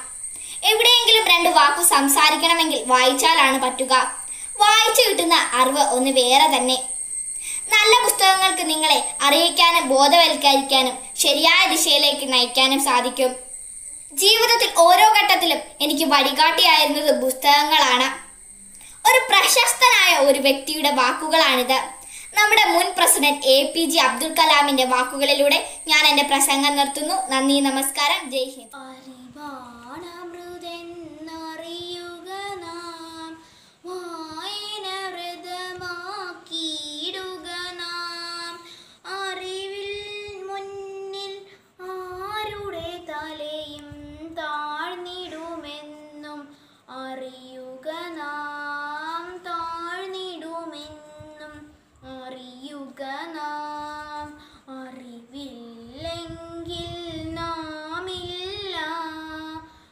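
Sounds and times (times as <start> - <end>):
girl singing unaccompanied: 0.0 - 59.9.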